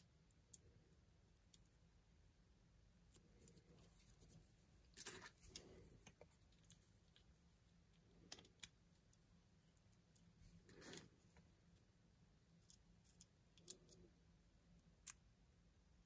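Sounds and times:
faint clicks and rustles of handling: 2.9 - 15.3.

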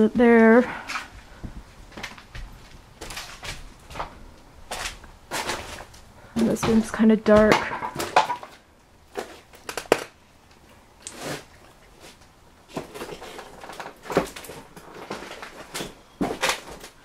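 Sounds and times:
footsteps crunching over debris: 0.3 - 9.6.

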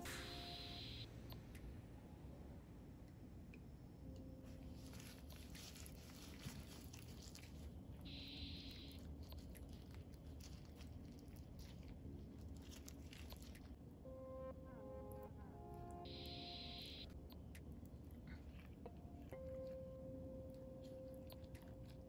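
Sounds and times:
wet squishing of raw chicken: 4.9 - 13.8.

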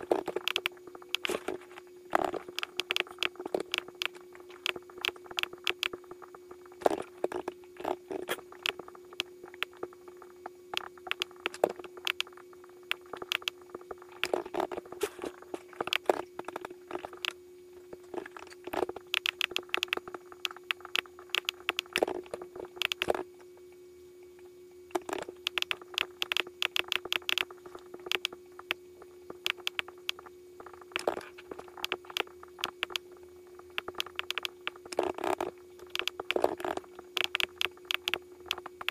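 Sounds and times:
sharp clicks in bursts: 0.0 - 1.5, 2.1 - 6.0, 6.7 - 14.8, 15.8 - 17.4, 18.2 - 23.5, 24.9 - 38.9
steady low hum: 0.0 - 38.9.

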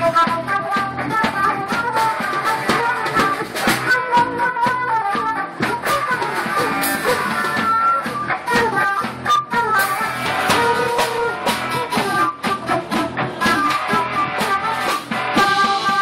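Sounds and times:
flute lead line: 0.0 - 5.2
live rock band playing: 0.0 - 16.0.

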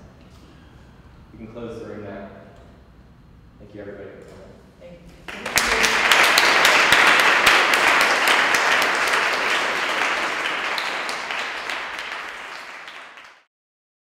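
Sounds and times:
audience applauding: 5.3 - 13.5.

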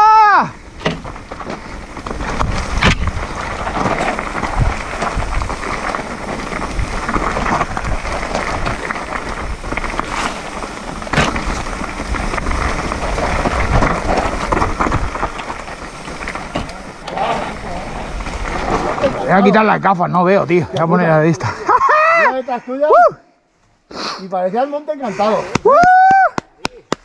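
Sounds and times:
bike tyres rolling over stones: 0.0 - 22.4, 24.4 - 27.0
bike frame rattling and knocking: 0.8 - 17.4.

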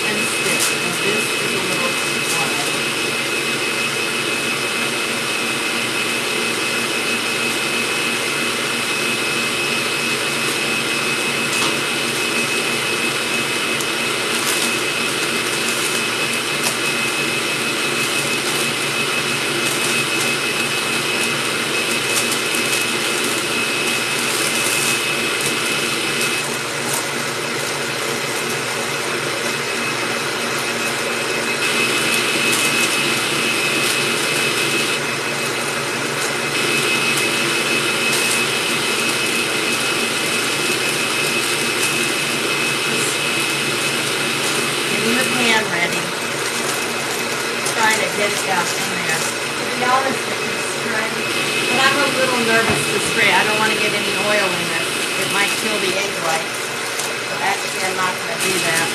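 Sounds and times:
stand mixer whining: 0.0 - 58.9
parchment paper crinkling: 13.7 - 16.9, 19.4 - 27.1, 44.4 - 50.2.

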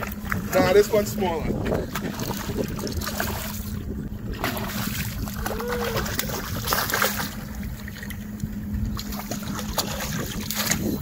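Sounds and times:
steady low hum: 0.0 - 11.0
wind buffeting microphone: 0.0 - 11.0
fish splashing at water surface: 4.3 - 8.2.

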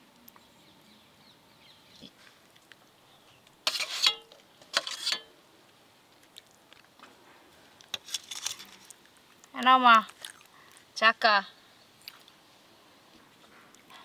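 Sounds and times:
metal spoon scraping steel bowl: 3.6 - 5.3.

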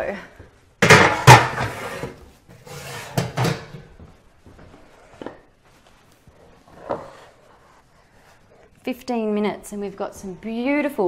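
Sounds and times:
metal baking trays rattling: 0.8 - 2.0, 2.7 - 3.9.

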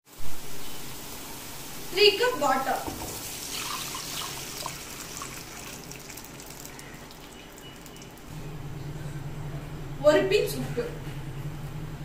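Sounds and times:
water pouring into a wok: 2.8 - 8.2.

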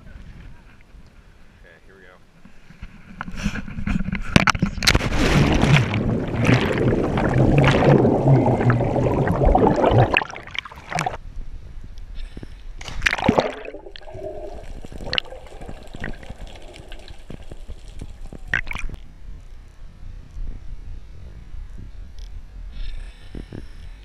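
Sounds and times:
underwater gurgling and bubbling: 4.8 - 11.2, 13.0 - 19.0
loud rushing wind: 4.9 - 11.2
splash into water: 4.9 - 11.2, 12.8 - 19.0.

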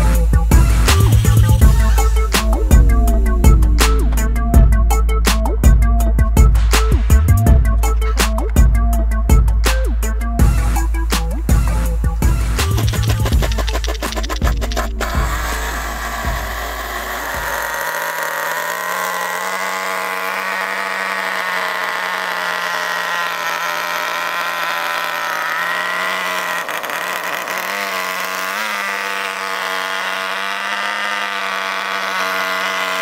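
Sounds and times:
small nitro engine running: 12.6 - 33.0.

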